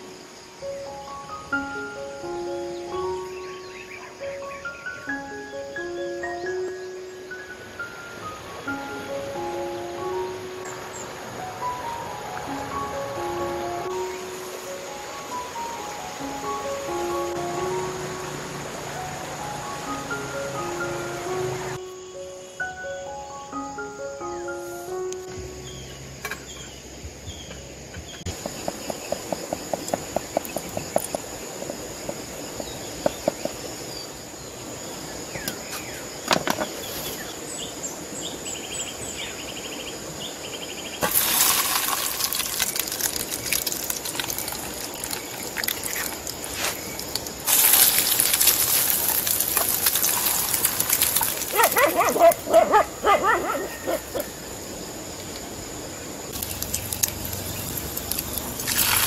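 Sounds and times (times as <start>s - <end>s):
food sizzling in hot oil: 41.0s - 51.7s, 56.3s - 59.0s.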